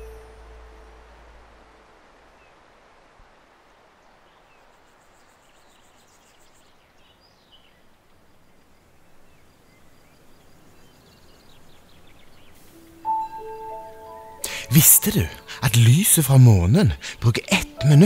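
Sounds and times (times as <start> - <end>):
even outdoor hiss: 0.0 - 18.0
soft bird chirps: 3.7 - 14.4.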